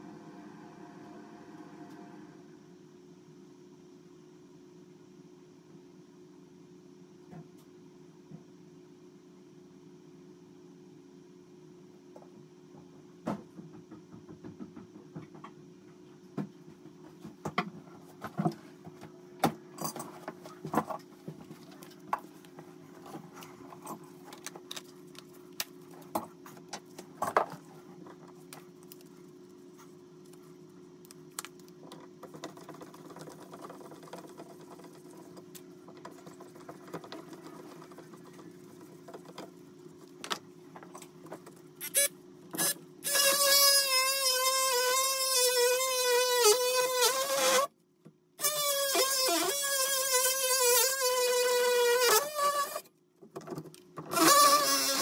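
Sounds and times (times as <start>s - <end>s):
steady low hum: 0.0s - 43.2s.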